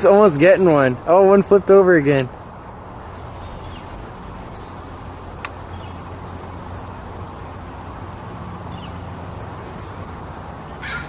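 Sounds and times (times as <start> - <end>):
low hum: 2.3 - 10.8.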